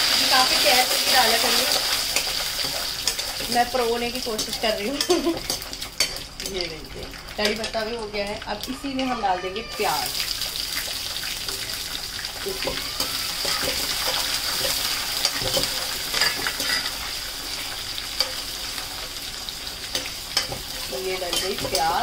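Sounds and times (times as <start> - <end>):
onions sizzling in oil: 0.0 - 22.0
spatula scraping pan: 12.6 - 18.6.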